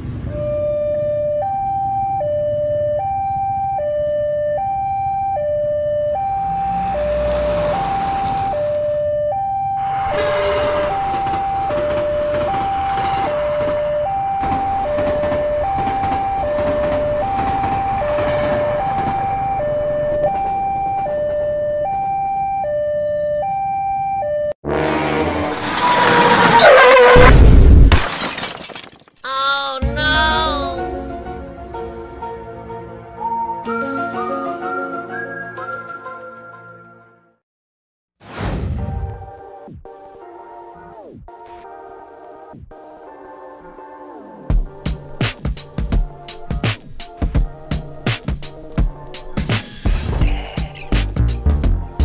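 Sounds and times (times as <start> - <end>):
two-tone warning alarm: 0.3 - 24.6
passing train rumble and clatter: 10.1 - 20.5.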